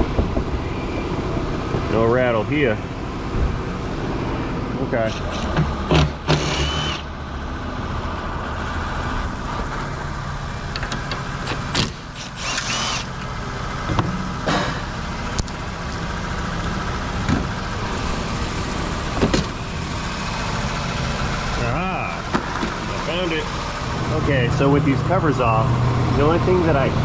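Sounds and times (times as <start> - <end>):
cooling fans running: 0.0 - 27.0
car engine idling: 7.0 - 27.0
sharp clicks and knocks: 10.7 - 13.3.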